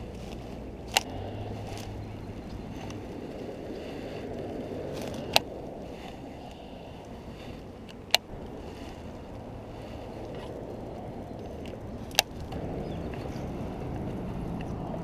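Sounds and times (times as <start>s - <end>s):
wind buffeting microphone: 0.0s - 15.0s
sharp clicks: 0.2s - 3.0s, 5.0s - 5.5s, 7.8s - 8.5s, 10.2s - 13.3s.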